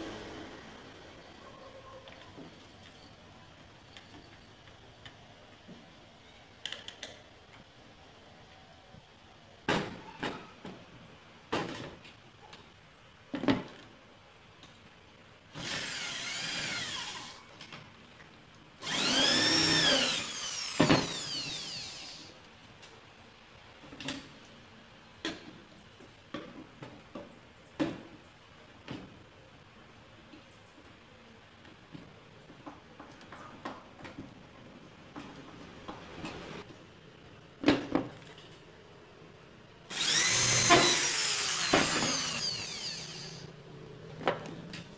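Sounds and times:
electric drill running: 15.6 - 17.4, 18.8 - 22.3, 39.9 - 43.5.

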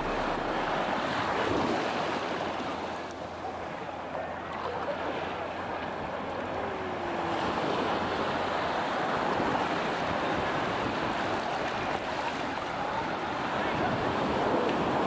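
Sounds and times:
wind on microphone: 0.0 - 2.7
small waves washing ashore: 0.0 - 15.0.

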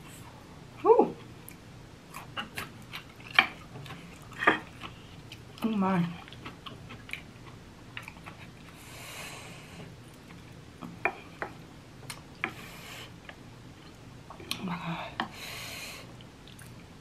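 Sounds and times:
chewing and wet mouth clicks: 16.2 - 16.8.

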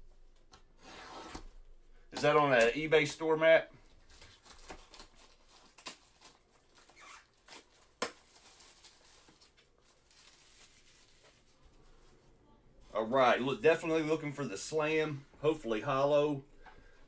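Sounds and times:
plastic shrink-wrap tearing: 4.1 - 11.6.

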